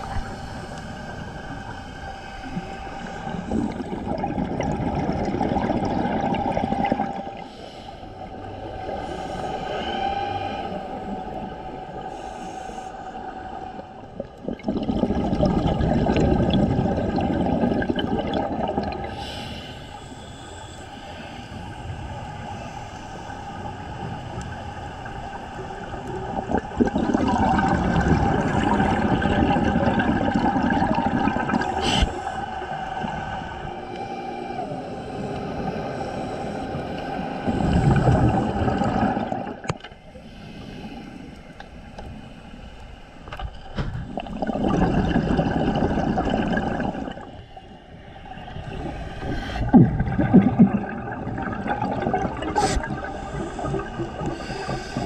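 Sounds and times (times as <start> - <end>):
diver exhaling bubbles: 3.0 - 7.5, 14.2 - 19.4, 26.2 - 33.6, 35.4 - 39.8, 43.9 - 47.4, 48.4 - 55.0
diver inhaling through regulator: 19.0 - 26.0, 28.6 - 43.2, 51.4 - 55.0.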